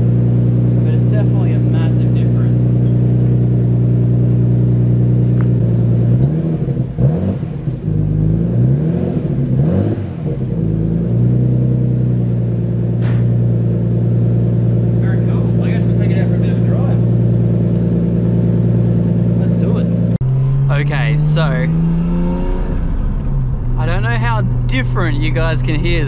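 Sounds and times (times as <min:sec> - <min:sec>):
car engine idling and revving: 0:00.0 - 0:26.0.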